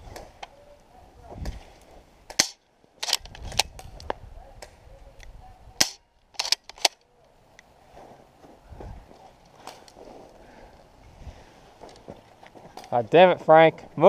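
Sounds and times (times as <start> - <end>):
airsoft guns firing: 5.8 - 6.9.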